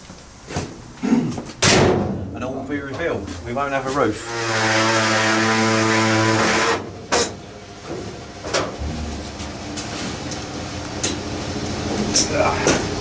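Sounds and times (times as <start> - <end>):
power tool cutting metal: 4.2 - 6.9.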